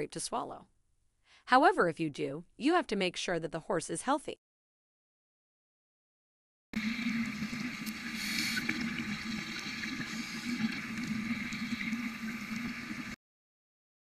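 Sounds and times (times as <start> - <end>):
steady watery noise: 6.8 - 13.2.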